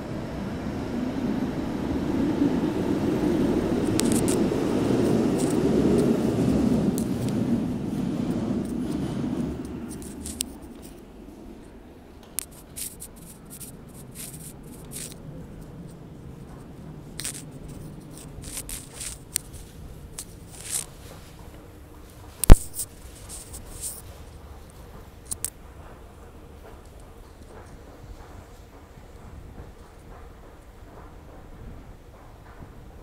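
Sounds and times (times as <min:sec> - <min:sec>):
sharp click: 0:22.4 - 0:22.9.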